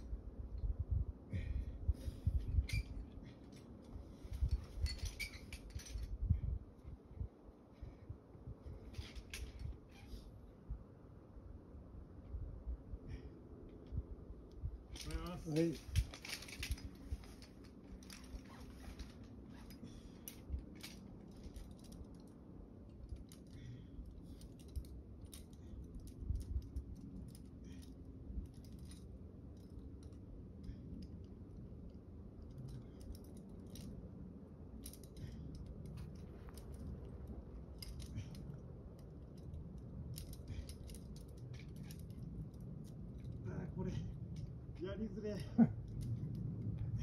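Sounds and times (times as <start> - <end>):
climbing hardware clinking: 2.2 - 6.3, 14.9 - 34.1, 34.8 - 47.0.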